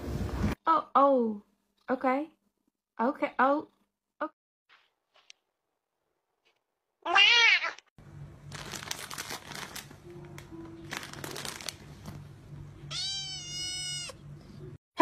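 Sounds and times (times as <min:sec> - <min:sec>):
cat meowing: 0:07.0 - 0:07.8, 0:12.9 - 0:14.2.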